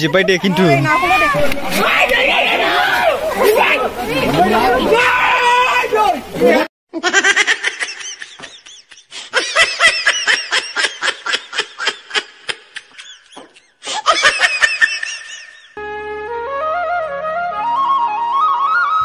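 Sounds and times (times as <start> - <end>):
high-pitched laughter: 6.9 - 15.7
flute music: 15.8 - 19.0.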